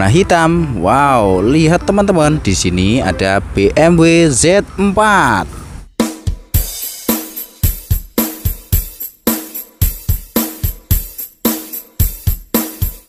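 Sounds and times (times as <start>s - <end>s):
music with drum beat: 5.9s - 13.0s.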